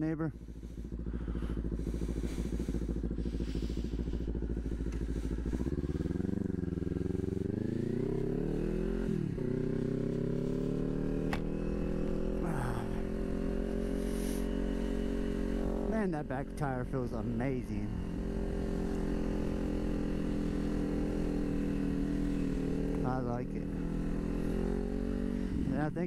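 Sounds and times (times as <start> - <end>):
motorcycle engine idling and revving: 0.0 - 26.0.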